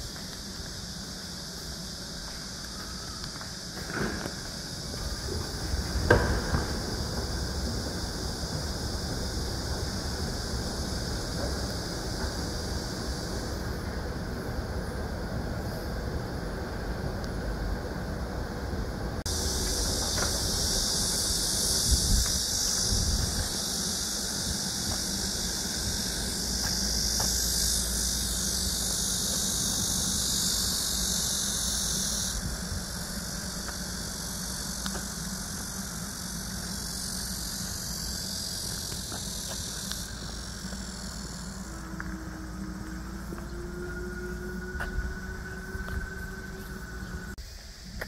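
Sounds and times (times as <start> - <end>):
cicadas buzzing: 0.0 - 48.0.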